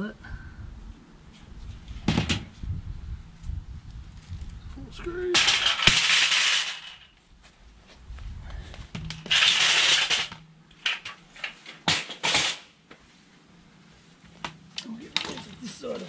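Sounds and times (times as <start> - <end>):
mesh panel scraping rattle: 5.4 - 7.1, 9.1 - 12.6.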